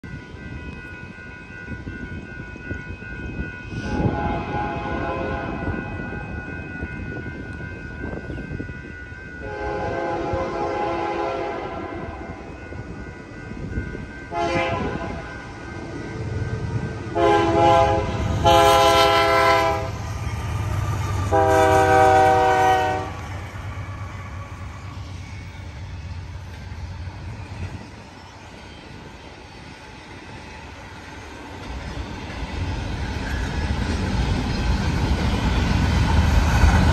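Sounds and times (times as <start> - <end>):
locomotive rumble: 3.2 - 36.9
locomotive air horn blasts: 3.8 - 5.7, 9.4 - 12.4, 14.3 - 15.3, 17.1 - 20.0, 21.2 - 23.3.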